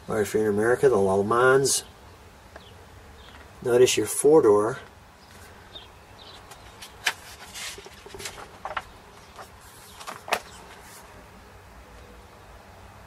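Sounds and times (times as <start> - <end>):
glossy paper rustling: 6.4 - 11.2.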